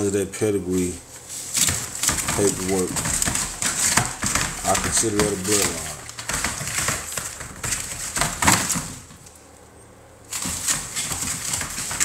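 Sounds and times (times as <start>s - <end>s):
puppies scrabbling in wood shavings: 0.0s - 9.4s, 10.3s - 12.0s
claws clicking: 1.5s - 9.4s.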